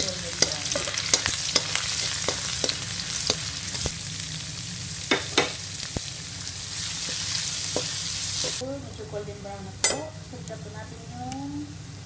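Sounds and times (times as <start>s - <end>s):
spoon scraping pan: 0.0s - 3.9s
garlic sizzling in oil: 0.0s - 12.0s.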